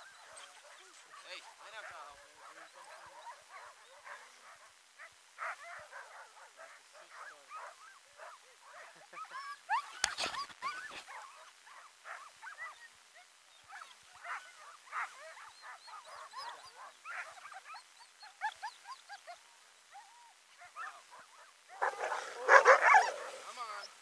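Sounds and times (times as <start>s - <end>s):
sled dogs whining and yipping: 7.2s - 24.0s.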